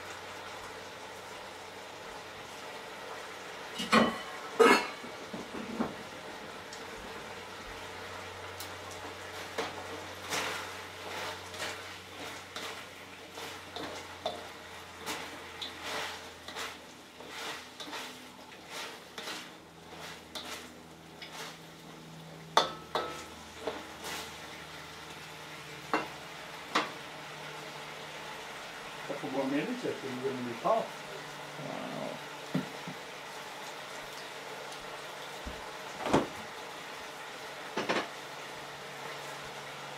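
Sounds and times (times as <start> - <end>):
sauce sizzling: 0.0 - 39.9
utensil scraping a metal wok: 9.3 - 21.9, 22.6 - 24.5.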